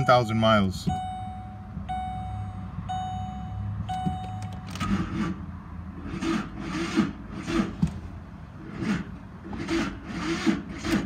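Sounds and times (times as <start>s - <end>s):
car warning chime: 0.0s - 4.9s.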